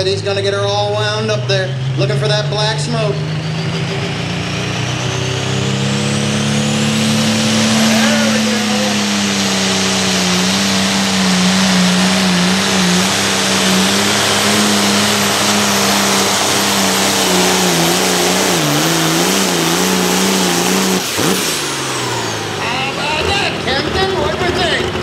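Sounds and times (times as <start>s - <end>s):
tractor diesel engine droning: 0.0s - 25.0s.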